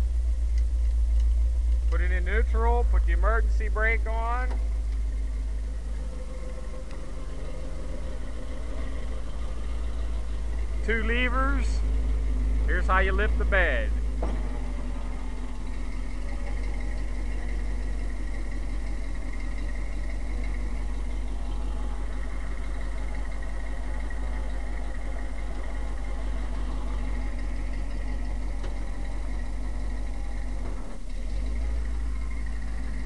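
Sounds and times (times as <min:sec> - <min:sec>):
truck engine idling: 0:00.0 - 0:33.0.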